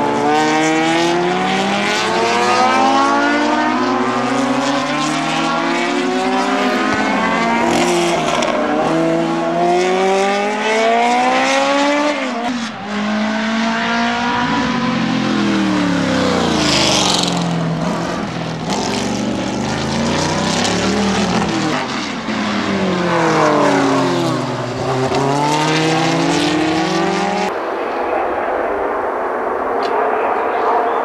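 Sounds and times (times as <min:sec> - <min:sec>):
race cars passing at speed: 0:00.0 - 0:31.0.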